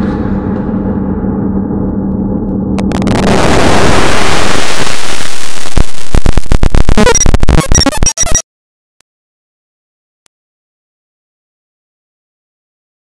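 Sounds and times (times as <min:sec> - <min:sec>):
wall of noise: 0:00.0 - 0:08.4
choppy stutters: 0:02.8 - 0:08.4
distorted music: 0:02.8 - 0:08.4.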